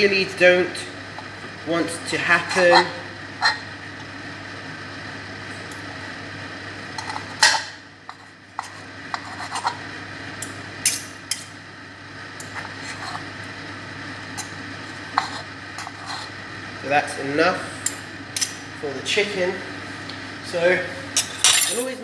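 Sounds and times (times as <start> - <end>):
knife and fork scraping pan: 2.4 - 3.6, 8.6 - 9.8, 15.2 - 16.4.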